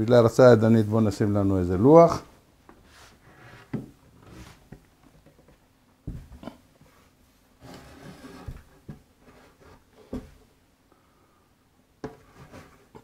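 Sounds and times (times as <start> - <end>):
board knocking and thumping: 4.7 - 6.6, 10.0 - 10.4
board rubbing and scraping: 7.6 - 10.2.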